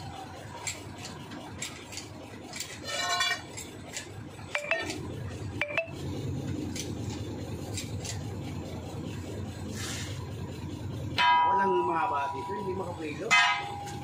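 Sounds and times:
low vehicle engine rumble: 0.0 - 14.0
hand tools clinking on metal: 0.6 - 5.8.

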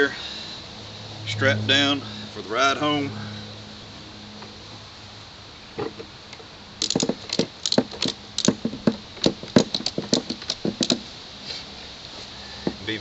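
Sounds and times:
ratchet strap clicking: 6.8 - 11.1.

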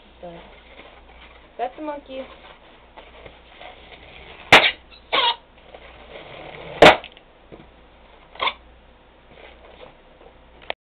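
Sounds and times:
faint rustle: 0.2 - 4.5
loud sharp pop: 4.5 - 4.8, 6.8 - 7.2.

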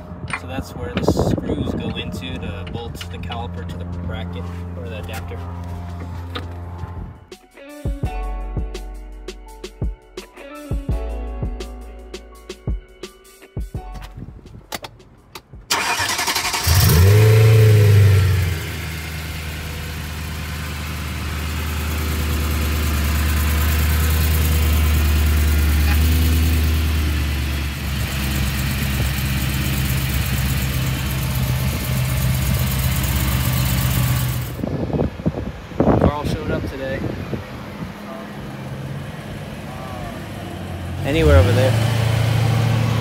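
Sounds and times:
car engine starting and idling: 13.9 - 43.0.

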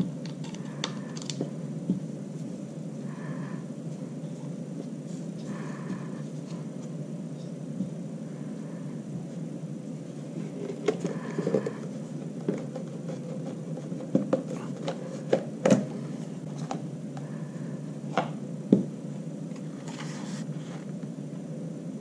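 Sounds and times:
steady background hiss: 0.0 - 22.0
plastic parts clicking and knocking: 0.2 - 1.5.

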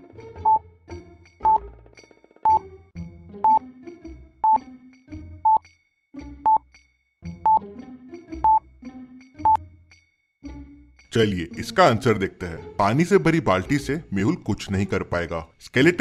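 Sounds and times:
light background music: 0.0 - 16.0
countdown timer beeping: 1.4 - 1.6, 4.4 - 4.6, 5.5 - 5.7, 6.4 - 6.6, 7.4 - 7.6, 8.4 - 8.6, 9.4 - 9.6.

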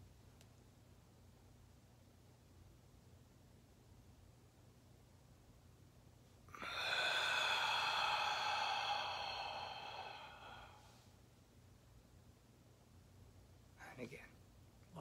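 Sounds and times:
man exhaling forcefully: 6.5 - 11.0.

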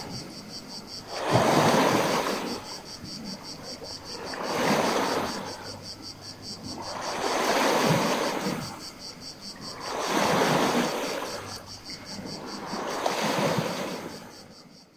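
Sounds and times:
crickets chirping: 0.0 - 14.9
waves washing over pebbles: 1.0 - 2.9, 3.5 - 5.8, 6.6 - 9.0, 9.6 - 14.4.

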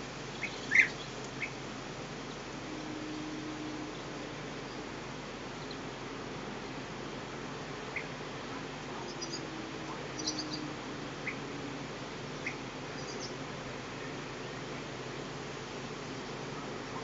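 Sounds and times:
steady hiss: 0.0 - 17.0
bird chirps: 10.2 - 11.4.

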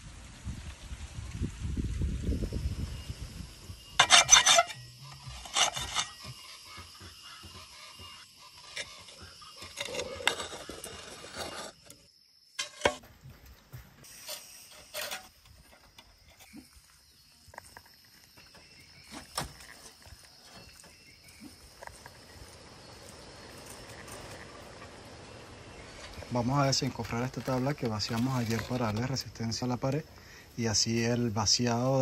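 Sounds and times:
clay roof tiles knocking and scraping: 4.0 - 16.6, 17.5 - 21.1, 26.0 - 30.1.

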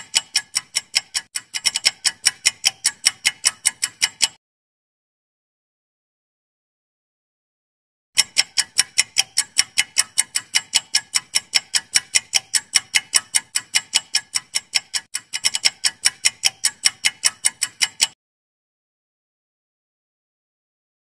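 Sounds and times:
clock ticking: 0.0 - 4.4, 8.2 - 18.2.

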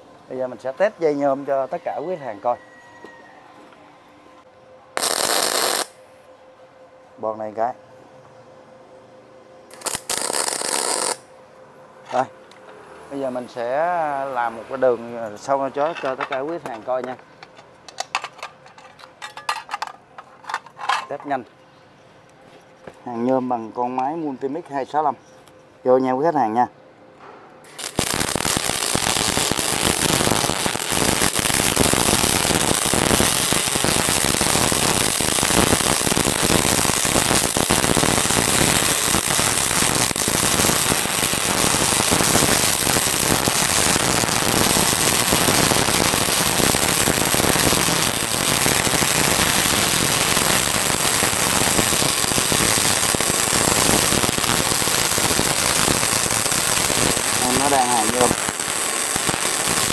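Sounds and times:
welding arc crackling: 5.0 - 6.0, 9.7 - 11.3, 27.6 - 59.9.

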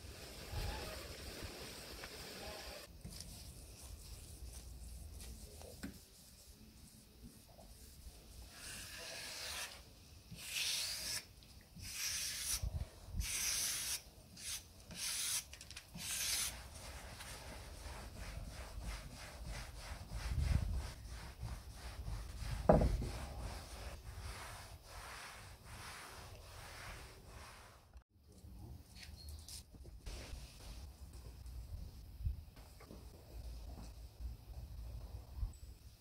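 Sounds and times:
cloth rubbing wood: 16.5 - 27.9.

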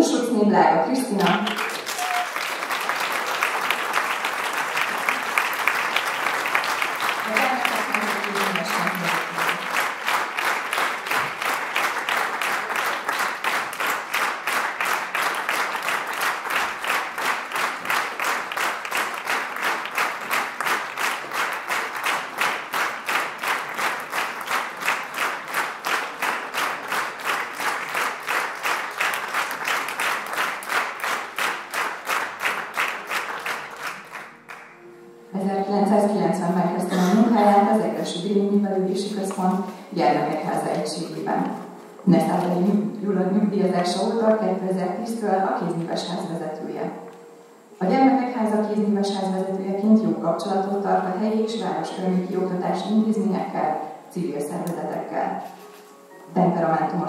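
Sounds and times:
audience applause: 1.2 - 34.8
rhythmic clapping in unison: 1.2 - 34.9.

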